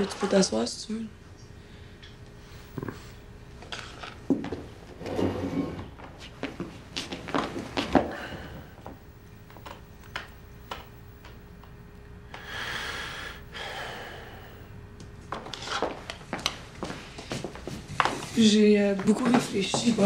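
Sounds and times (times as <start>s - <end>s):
breathy exhale: 8.1s - 8.8s, 12.3s - 14.7s.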